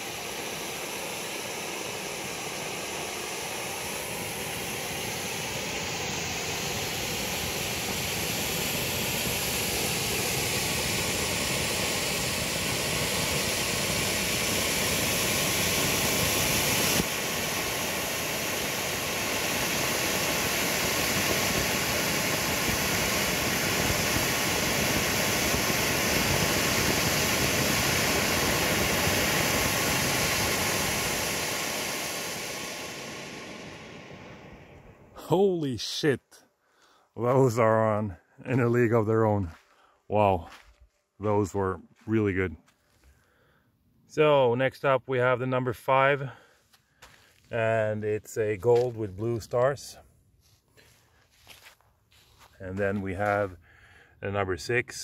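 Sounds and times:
firework fountains hissing: 0.0 - 36.2.

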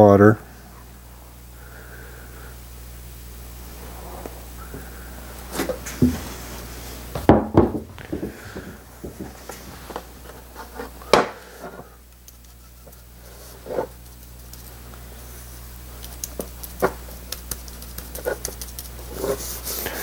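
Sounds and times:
low steady hum: 0.0 - 20.0
wood bumping in metal pans: 7.2 - 11.8.

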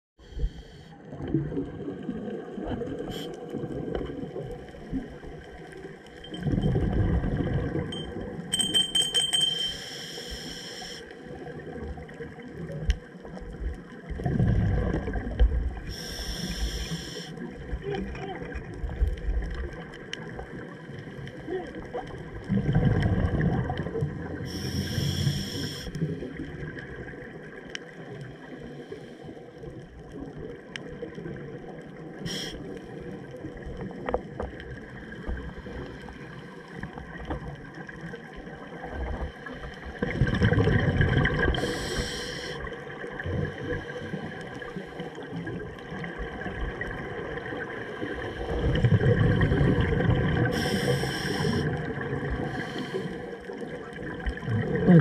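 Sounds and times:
exhaled bubbles rumbling underwater: 0.2 - 8.6, 11.0 - 55.0
regulator hiss: 9.7 - 11.2, 15.9 - 17.4, 24.5 - 26.0, 32.3 - 32.6, 41.6 - 42.7, 50.5 - 51.7.

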